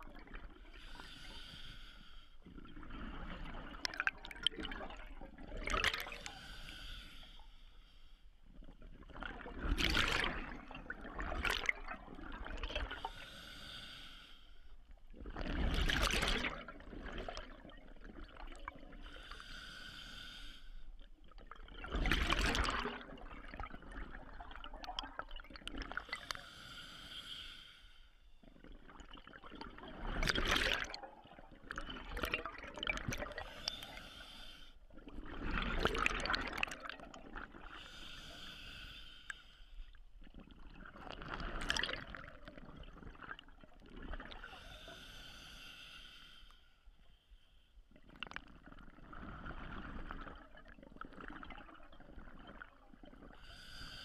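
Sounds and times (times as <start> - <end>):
exhaled bubbles gurgling: 0.0 - 1.3, 2.4 - 6.8, 8.5 - 13.4, 15.0 - 19.3, 21.0 - 26.4, 28.4 - 34.2, 34.8 - 38.7, 40.2 - 44.9, 47.9 - 54.0.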